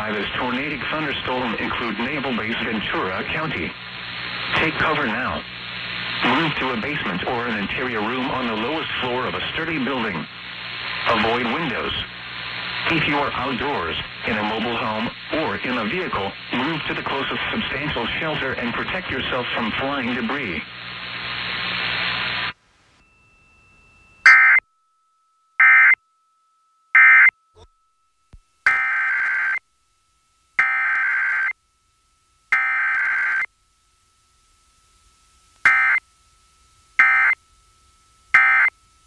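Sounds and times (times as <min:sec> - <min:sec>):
digital data bursts: 0:35.6 - 0:36.0, 0:37.0 - 0:37.4.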